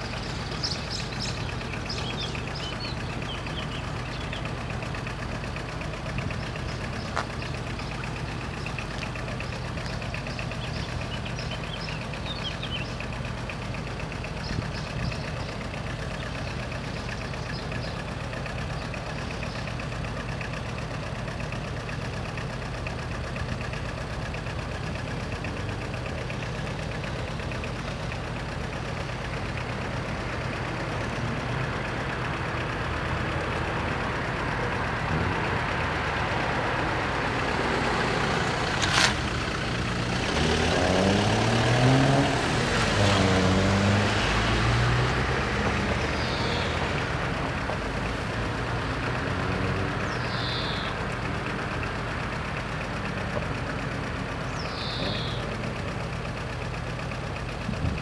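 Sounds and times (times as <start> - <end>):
diesel train approaching: 0.0 - 58.0
vehicle engines idling: 0.0 - 58.0.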